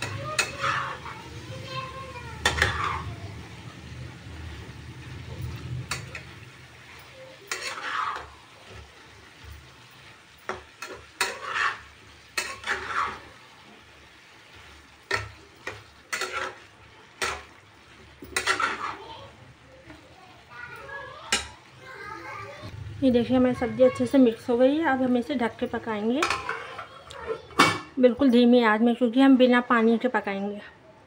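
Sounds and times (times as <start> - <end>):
spatula scraping frying pan: 0.0 - 3.4, 5.2 - 19.4, 24.8 - 27.6
faint frying sizzle: 0.0 - 30.8.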